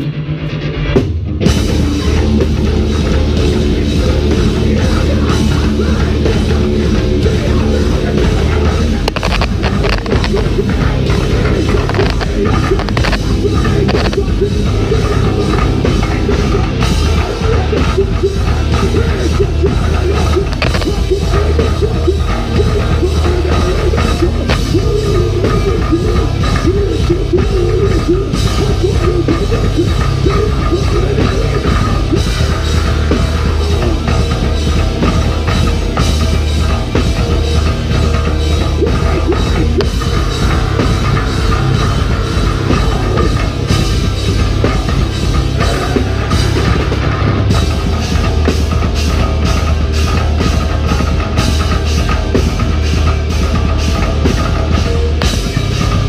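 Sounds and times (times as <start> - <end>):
deep bass guitar: 0.0 - 56.0
heavy metal band playing: 0.0 - 56.0
drum kit beat: 1.4 - 56.0.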